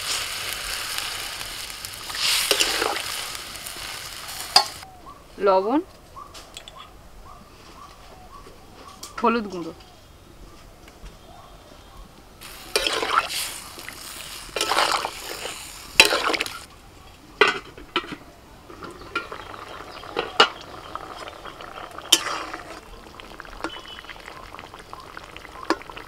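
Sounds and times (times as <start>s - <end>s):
curry bubbling: 0.0s - 4.8s, 12.4s - 16.7s, 18.6s - 26.0s.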